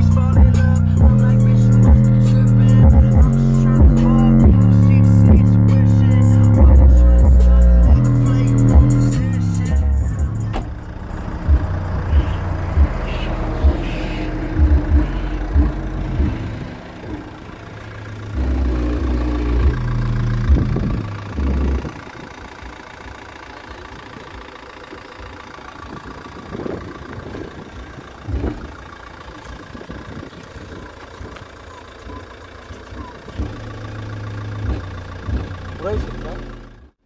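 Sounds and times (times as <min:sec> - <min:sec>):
diesel engine idling: 0:00.0 - 0:37.0.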